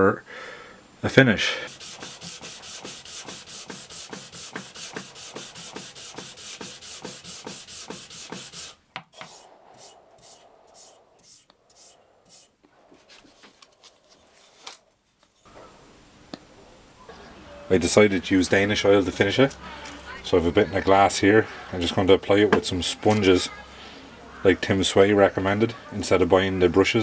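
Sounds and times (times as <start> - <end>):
hand sanding wood: 1.7 - 13.5.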